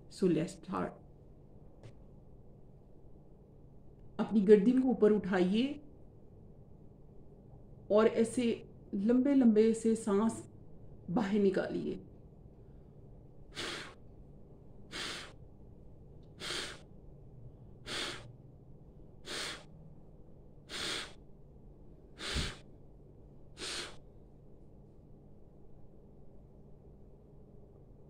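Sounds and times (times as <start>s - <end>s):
woman blowing out breath: 13.5s - 14.0s, 14.9s - 15.4s, 16.4s - 16.9s, 17.8s - 18.4s, 19.2s - 19.7s, 20.6s - 21.2s, 22.1s - 22.7s, 23.6s - 24.0s.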